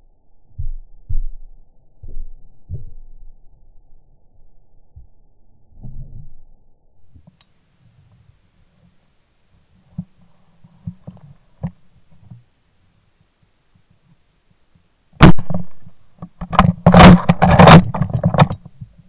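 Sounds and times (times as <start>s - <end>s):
faint clicks: 7.2s - 9.0s
shotgun shot: 15.2s - 15.9s
knocking and rustling: 15.2s - 19.0s.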